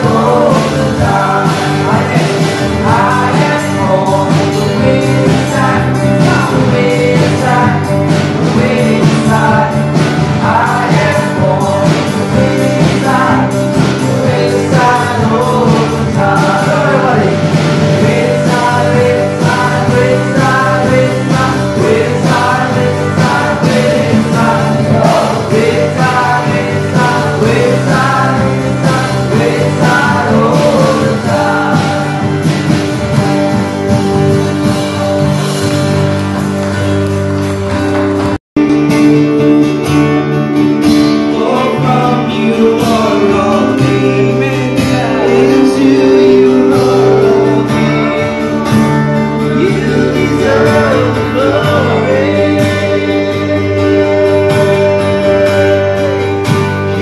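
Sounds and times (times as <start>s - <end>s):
song with singing: 0.0s - 36.2s, 38.9s - 57.0s.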